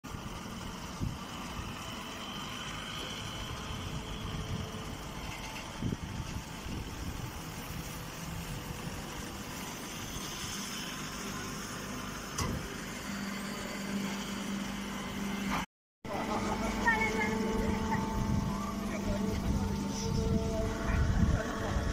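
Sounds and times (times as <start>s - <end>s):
hay baler machinery humming: 0.1s - 21.9s.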